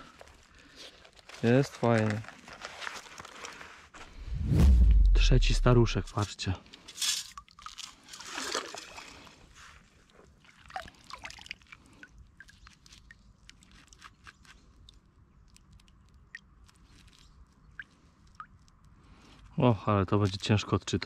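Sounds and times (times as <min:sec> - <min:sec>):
water drips and small splashes: 0:07.0 - 0:21.0
lake water sloshing: 0:07.6 - 0:14.5.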